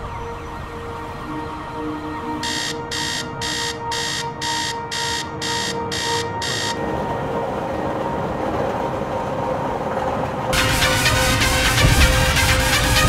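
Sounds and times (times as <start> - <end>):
steady drone: 0.0 - 13.0
alarm clock beeping: 2.4 - 6.8.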